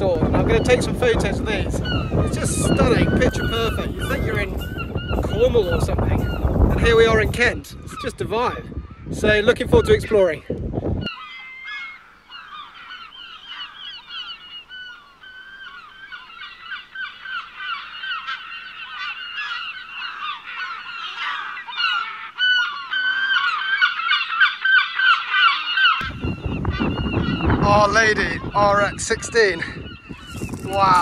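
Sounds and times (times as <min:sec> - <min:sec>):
flock of birds calling: 0:00.0 - 0:10.4, 0:11.0 - 0:31.0.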